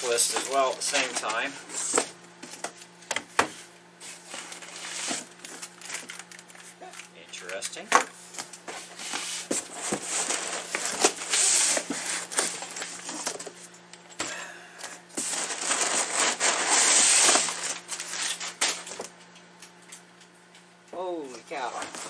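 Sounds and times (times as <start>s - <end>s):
cardboard boxes scraping and rustling: 0.0s - 2.7s, 3.5s - 6.1s, 8.4s - 13.6s, 15.2s - 19.0s.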